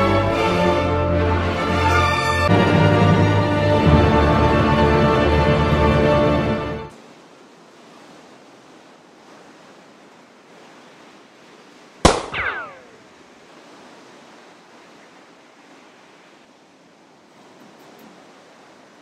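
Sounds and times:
music: 0.0s - 6.9s
surf washing: 0.0s - 19.0s
whine falling in pitch: 12.1s - 13.1s.

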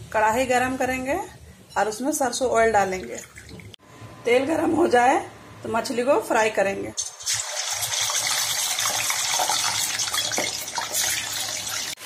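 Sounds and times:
fish sizzling in hot oil: 7.0s - 12.0s.

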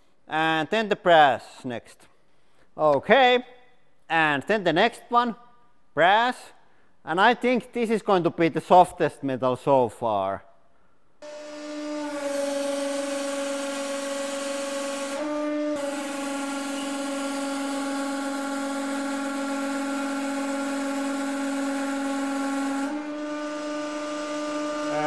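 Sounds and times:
hydraulic press humming whine: 11.2s - 25.0s.

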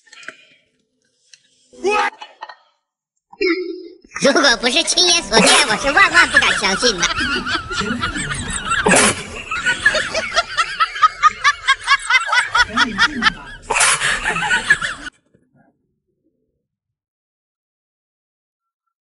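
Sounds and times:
rapid snickering laughter: 5.4s - 15.1s.

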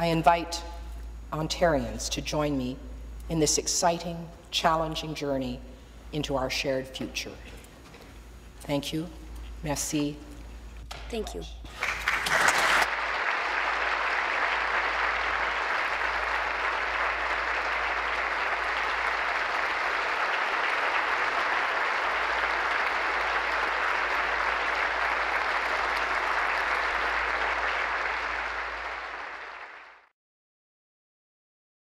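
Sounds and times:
audience applause: 11.7s - 30.1s.

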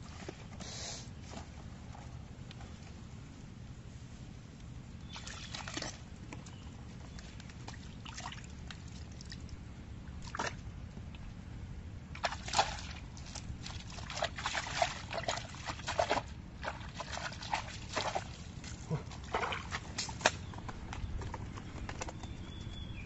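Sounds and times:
hands splashing in muddy water: 12.2s - 20.2s.

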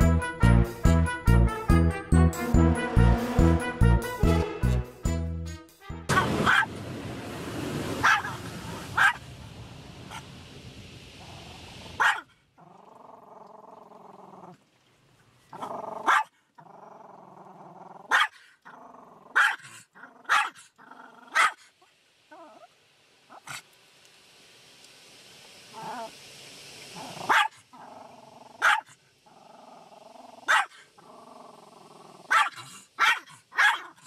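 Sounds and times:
dog barking: 6.1s - 6.7s, 8.0s - 8.4s, 9.0s - 9.2s, 12.0s - 12.3s, 16.0s - 16.3s, 18.1s - 18.4s, 19.4s - 19.6s, 20.3s - 20.6s, 21.3s - 21.6s, 27.2s - 27.5s, 28.6s - 28.9s, 30.5s - 30.8s, 32.3s - 34.0s
car wash rushing noise: 6.1s - 12.0s
dog growling: 12.6s - 14.6s, 15.6s - 21.4s, 22.3s - 22.7s, 25.8s - 26.1s, 27.0s - 32.9s.

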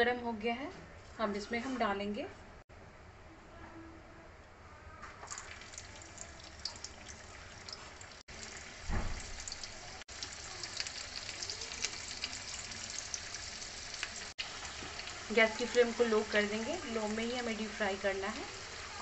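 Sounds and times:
hot oil sizzling and crackling: 5.3s - 19.0s
dull thump: 8.9s - 9.3s.

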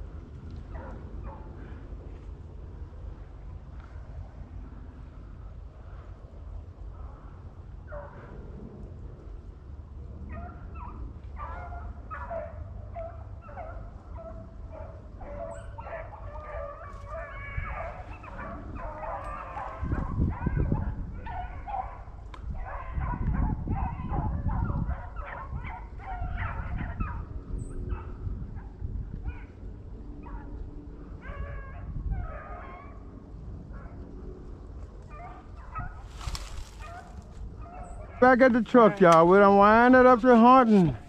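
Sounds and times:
low rumbling noise: 0.0s - 15.2s
hounds barking and bawling: 0.6s - 1.8s, 7.8s - 8.4s, 10.2s - 41.0s.

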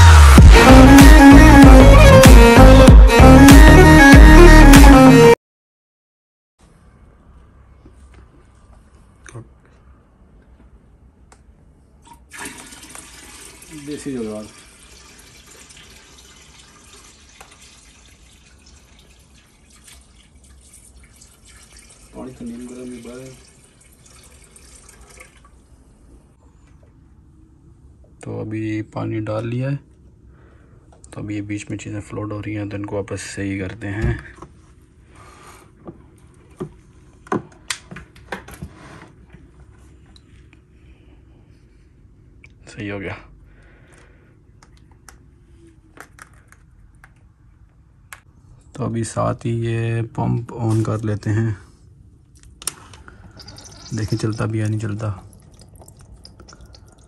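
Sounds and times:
water pouring into tank: 12.1s - 25.7s, 52.8s - 57.0s.

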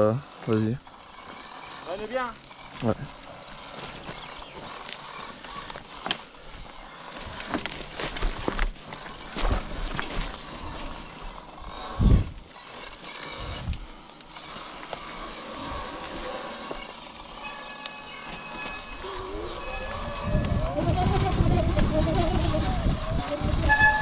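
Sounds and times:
tyres crunching over stones: 0.9s - 17.4s.

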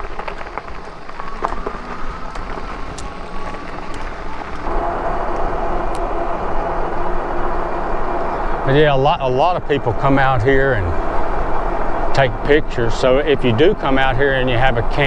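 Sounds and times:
electric motor whine: 0.0s - 8.9s
wind and tyres rumbling: 0.0s - 15.0s.

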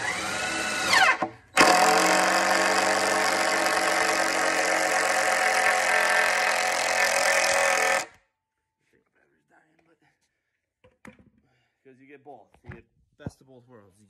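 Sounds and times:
motor-driven machine humming: 1.6s - 8.1s.

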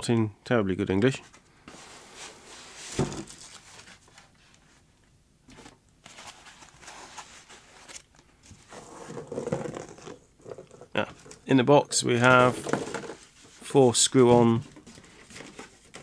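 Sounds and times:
foam and cardboard scraping: 8.6s - 10.2s.

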